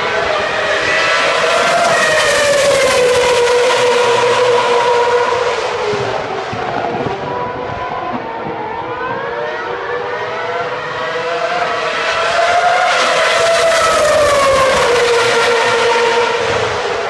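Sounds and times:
racing car engine passing: 0.0s - 7.7s, 8.6s - 17.0s.

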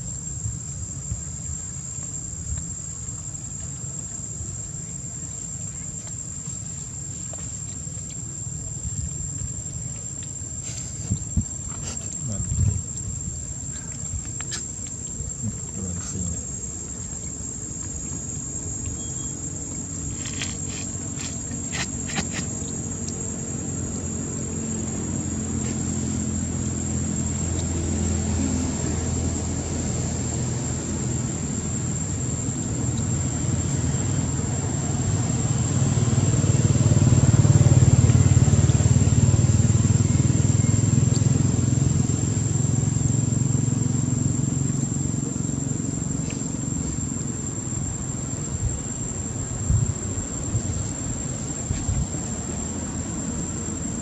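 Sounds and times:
high-pitched insect drone: 0.0s - 54.0s
vehicle engine rumble: 0.0s - 54.0s.

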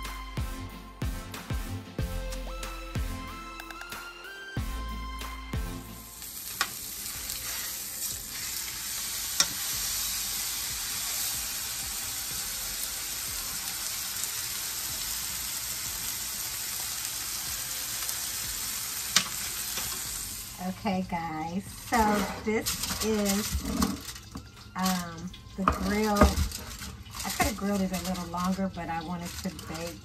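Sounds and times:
fish sizzling in frying pan: 5.9s - 30.0s
metal tongs clicking on pan: 9.4s - 9.6s, 19.1s - 20.0s.

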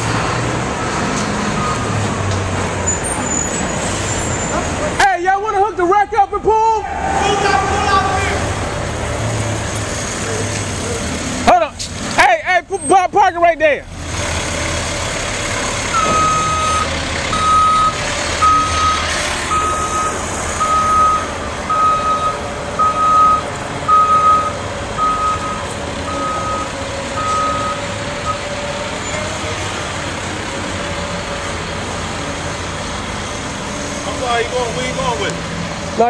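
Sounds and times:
truck reversing alarm beeping: 0.7s - 2.1s, 15.8s - 29.3s
truck engine running: 7.3s - 36.0s.

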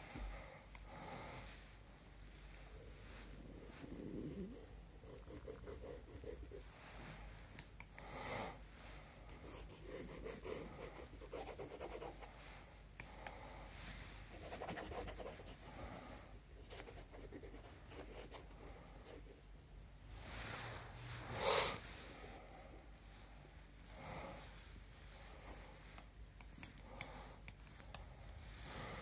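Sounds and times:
stick scratching on paper: 4.4s - 6.6s, 9.3s - 12.3s, 14.3s - 15.6s.

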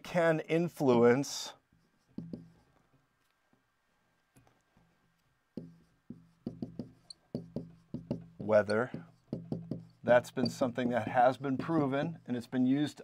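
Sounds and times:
marker tapping on whiteboard: 2.1s - 2.6s, 5.6s - 12.2s
low ring from whiteboard: 5.6s - 12.3s.

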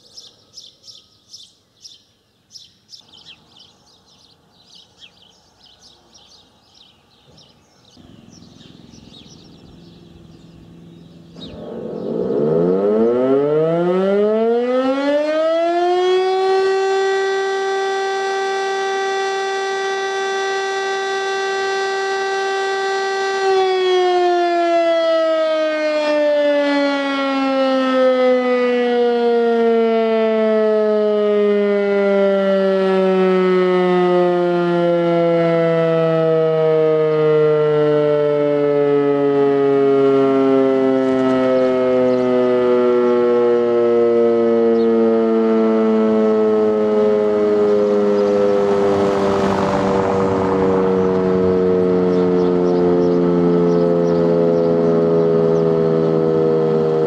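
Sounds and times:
rotor siren winding down: 8.9s - 57.0s
short rushing noise: 48.2s - 52.1s.

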